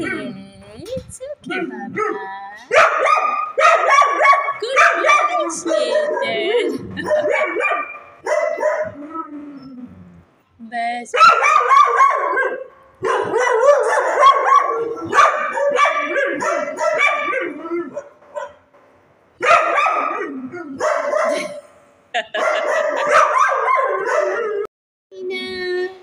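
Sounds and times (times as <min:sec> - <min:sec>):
dogs barking: 0:00.0 - 0:00.4, 0:01.4 - 0:09.2, 0:11.1 - 0:18.7, 0:19.4 - 0:21.6, 0:22.2 - 0:24.7.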